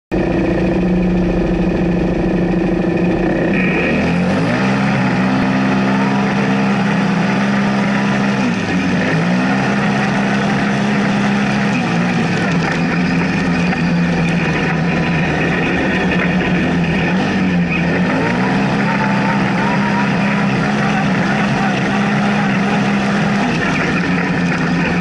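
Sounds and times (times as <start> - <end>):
vehicle engine revving: 0.1 - 25.0.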